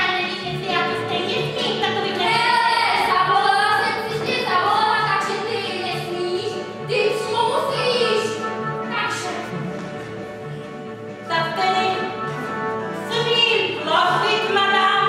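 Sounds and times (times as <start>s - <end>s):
woman singing: 0.0s - 8.4s, 13.0s - 15.0s
music with steady beat: 0.0s - 15.0s.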